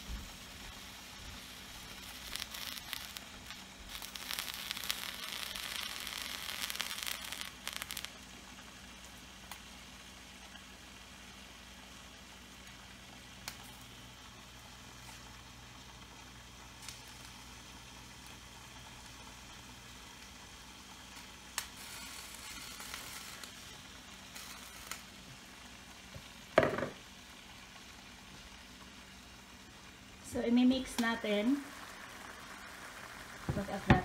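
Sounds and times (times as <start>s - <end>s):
mussels sizzling in a pan: 0.0s - 34.0s
knock: 26.6s - 27.0s.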